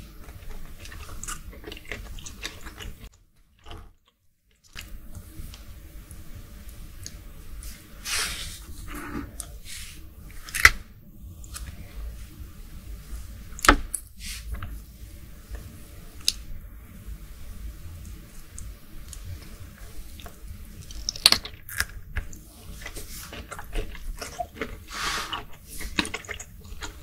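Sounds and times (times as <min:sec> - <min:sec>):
wet squishy chewing: 0:00.1 - 0:05.7, 0:18.0 - 0:27.0.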